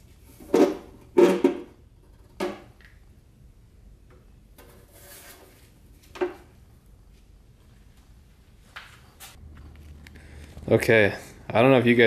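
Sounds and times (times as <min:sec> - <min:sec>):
soft metal scrape: 0:04.6 - 0:05.8.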